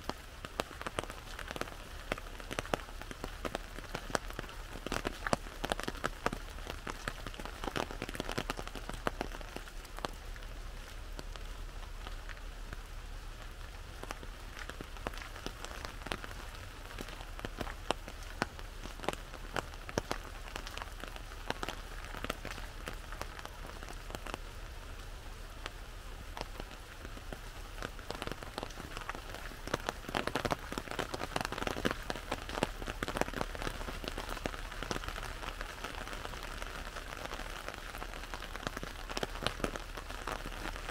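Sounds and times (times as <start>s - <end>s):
rain pattering on an umbrella: 0.0s - 40.9s.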